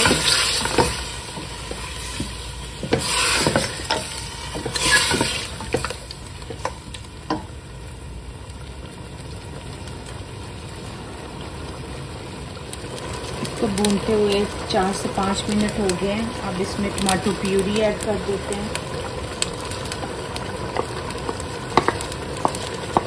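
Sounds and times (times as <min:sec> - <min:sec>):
wooden spoon scraping a pot: 0:00.0 - 0:06.8
meat sizzling in a pot: 0:00.0 - 0:23.0.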